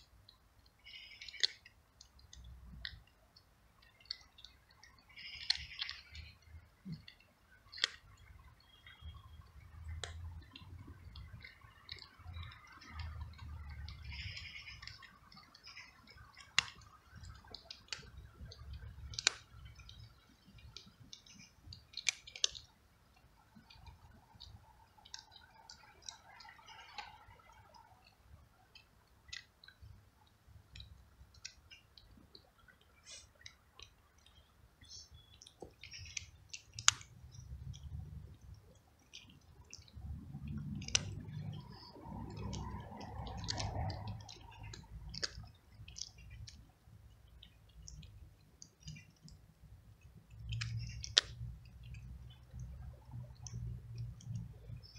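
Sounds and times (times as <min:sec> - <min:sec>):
cat chewing dry kibble: 0:00.2 - 0:54.9.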